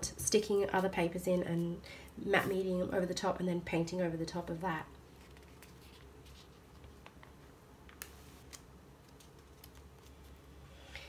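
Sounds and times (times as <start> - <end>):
paper pages turning: 5.1 - 10.5.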